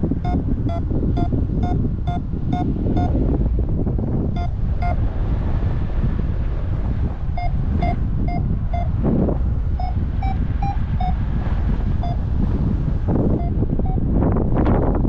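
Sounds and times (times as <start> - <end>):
variometer short beeps: 0.0 - 3.2, 4.3 - 5.0, 7.3 - 9.0, 9.7 - 12.3, 13.2 - 14.2
wind rushing over microphone: 0.0 - 15.0.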